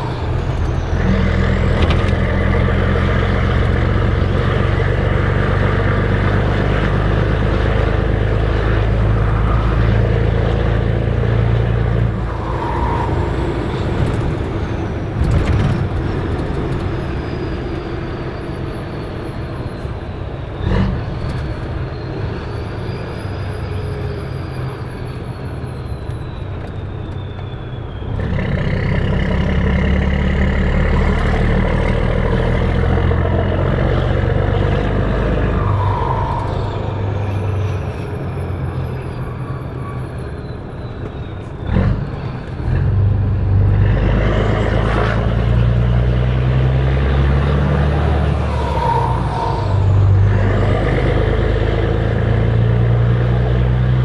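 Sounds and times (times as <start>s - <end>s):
truck engine drone: 0.0s - 54.0s
turbo whistle: 35.4s - 38.1s.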